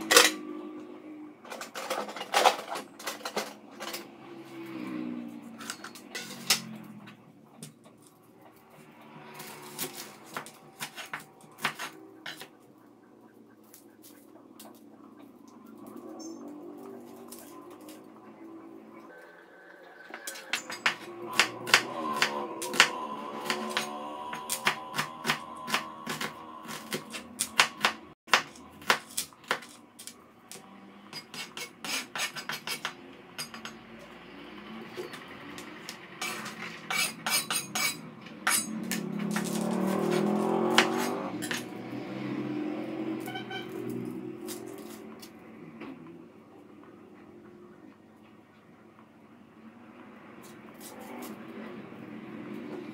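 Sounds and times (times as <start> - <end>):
knife and dishes clinking: 5.6 - 6.8, 20.2 - 30.1, 31.1 - 33.8, 36.2 - 41.7
knife cutting on plastic board: 9.4 - 12.6, 20.3 - 30.1.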